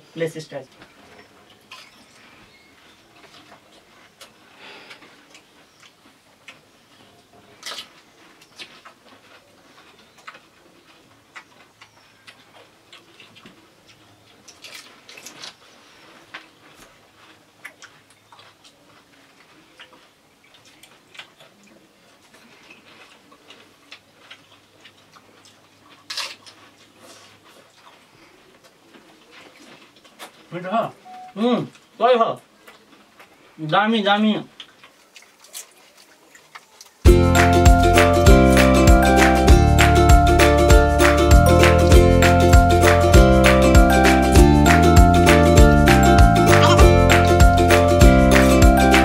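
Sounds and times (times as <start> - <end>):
crisp shells cracking and crunching: 14.4 - 15.6, 25.9 - 26.7.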